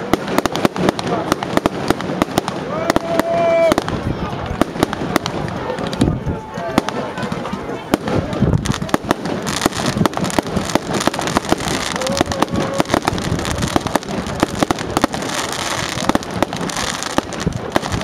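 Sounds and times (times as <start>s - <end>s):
fireworks bangs and crackling: 0.0s - 18.0s.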